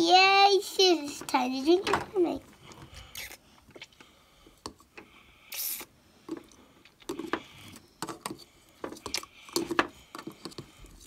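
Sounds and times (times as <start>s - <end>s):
short hiss: 5.5s - 5.9s.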